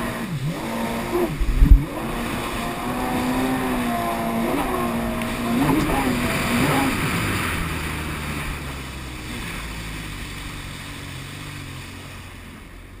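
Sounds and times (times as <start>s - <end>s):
jet ski engine running: 0.0s - 13.0s
rushing water spray: 0.0s - 13.0s
wind: 0.0s - 13.0s.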